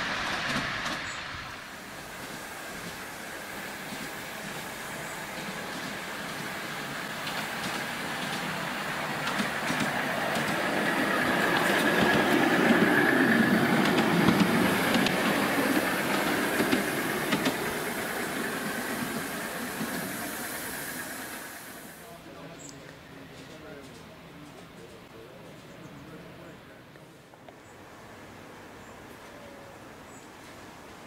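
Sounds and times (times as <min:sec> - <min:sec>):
miniature train passing: 0:00.0 - 0:31.0
wheels clicking over rail joints: 0:02.2 - 0:20.2.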